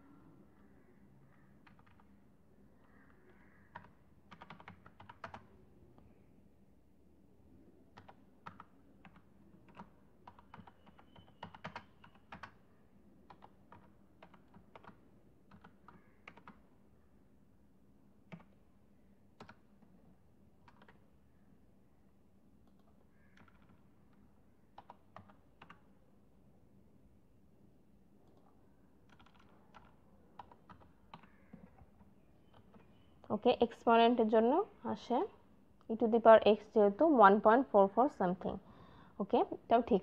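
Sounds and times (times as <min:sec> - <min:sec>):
faint steady hum: 0:00.0 - 0:40.0
keyboard typing: 0:01.6 - 0:02.2, 0:03.7 - 0:05.5, 0:07.9 - 0:12.6, 0:13.3 - 0:16.7, 0:18.2 - 0:18.6, 0:19.4 - 0:21.1, 0:22.6 - 0:26.0, 0:28.2 - 0:33.1.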